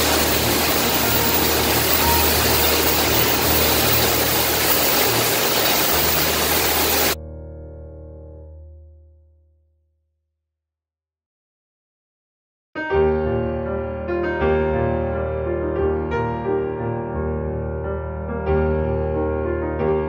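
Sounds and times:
bottling machinery running: 0.0s - 7.2s.

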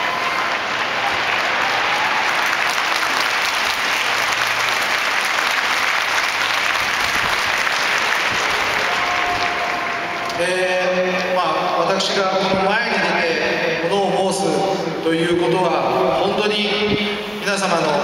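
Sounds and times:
crowd applauding: 0.0s - 11.2s.

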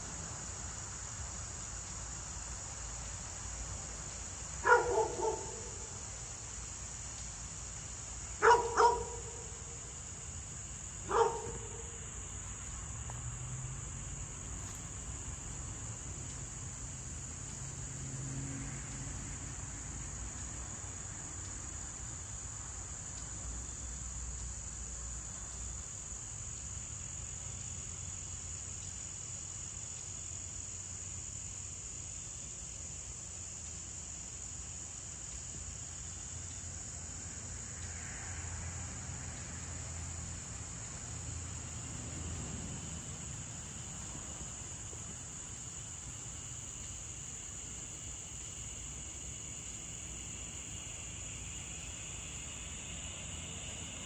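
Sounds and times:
crickets chirring: 0.0s - 54.0s
dog barking: 4.6s - 5.9s, 8.4s - 9.6s, 11.1s - 12.0s.

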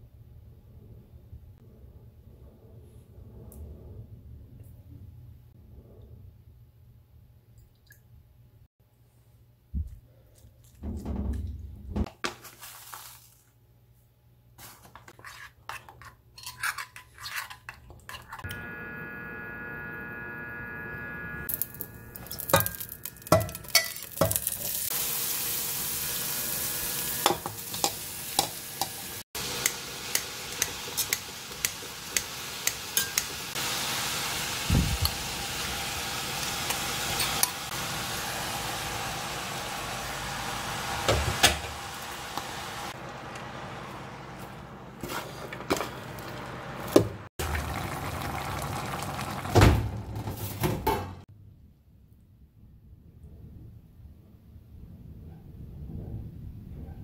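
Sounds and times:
utensil scraping metal pot: 14.9s - 18.5s
food sizzling in a pot: 18.5s - 49.7s
metal spoon clinking in bowl: 22.2s - 24.6s.

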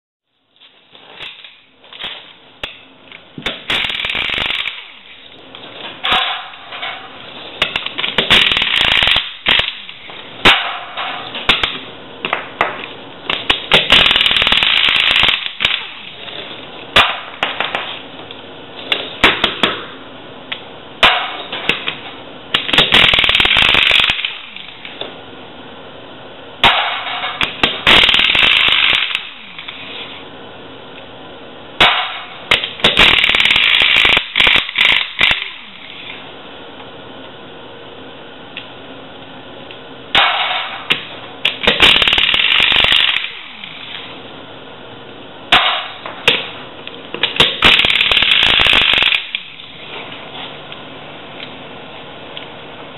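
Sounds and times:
air impact wrench: 1.0s - 2.8s, 3.4s - 5.3s, 6.0s - 11.8s, 13.3s - 17.9s, 21.0s - 25.1s, 26.6s - 30.2s, 31.8s - 36.2s, 40.1s - 44.2s, 47.2s - 49.9s.

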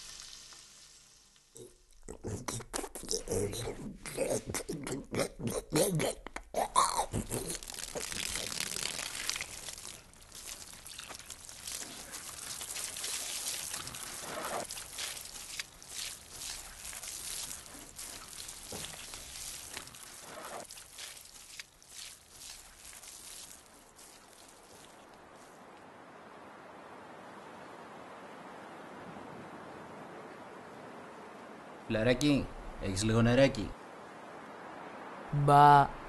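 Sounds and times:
water pouring and splashing: 0.0s - 2.0s, 7.0s - 26.0s.

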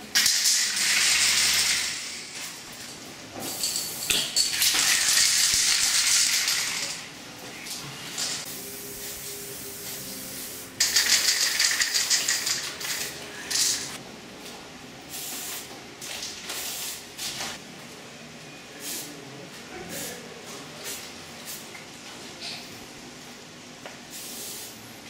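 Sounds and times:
spray paint cans hissing: 0.1s - 2.5s, 3.6s - 7.1s, 7.7s - 14.0s, 15.1s - 17.6s, 18.8s - 19.1s, 24.1s - 24.8s.

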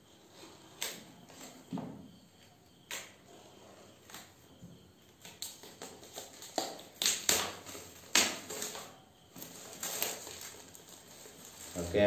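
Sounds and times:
plastic wrap crinkling: 5.8s - 12.0s.

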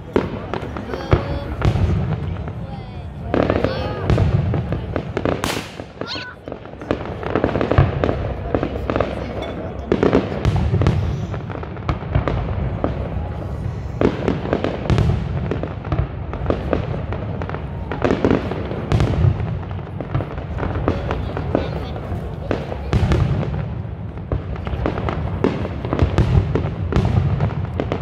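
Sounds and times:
fireworks bangs and crackles: 0.0s - 28.0s.

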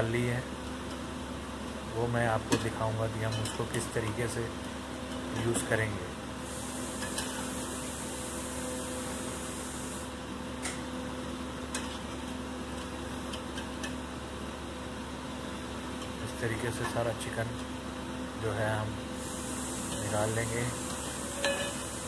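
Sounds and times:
steady mechanical hum: 0.0s - 22.0s
high hiss: 19.2s - 22.0s
metal spoon clinking on plate and pot: 21.4s - 21.9s.

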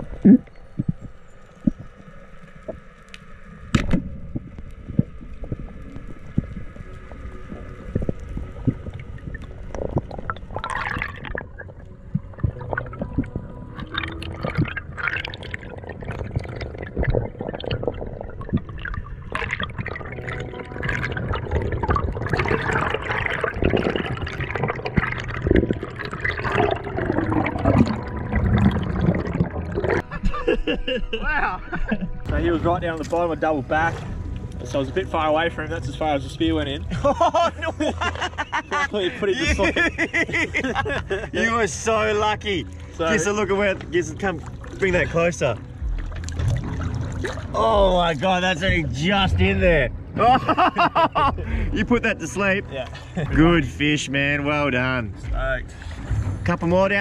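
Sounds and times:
underwater clicks and crackles: 0.0s - 30.1s, 32.7s - 36.8s, 41.0s - 49.8s
bubbling and gurgling: 0.0s - 30.8s, 31.8s - 37.1s, 38.0s - 57.0s
muffled underwater wash: 0.0s - 57.0s.

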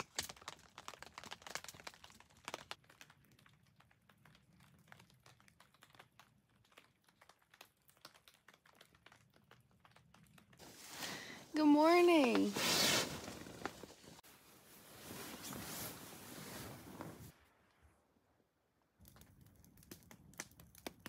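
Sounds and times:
faint small clicks and crinkles: 0.0s - 11.4s, 18.8s - 21.0s.

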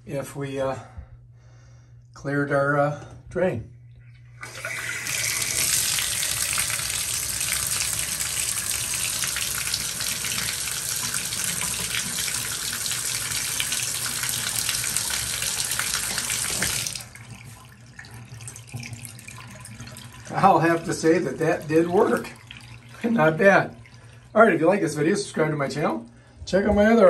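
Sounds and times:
faucet water splashing into tub: 4.4s - 24.4s.

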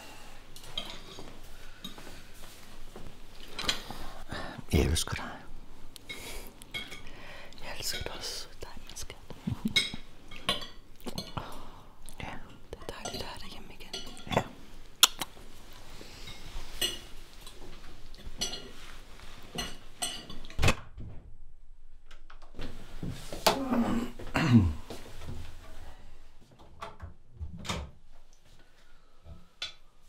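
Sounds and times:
cutlery and dishes clinking: 0.6s - 2.0s, 6.1s - 7.1s, 9.7s - 11.5s, 13.0s - 14.4s, 16.2s - 17.6s, 18.2s - 20.5s.

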